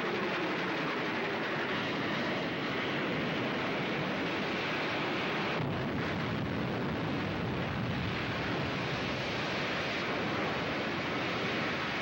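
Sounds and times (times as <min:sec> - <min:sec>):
roaring rush of burning wreck: 0:04.8 - 0:11.8.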